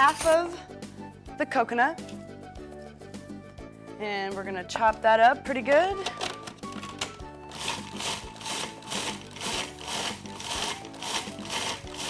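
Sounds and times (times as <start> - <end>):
food processor chopping: 7.5 - 12.0.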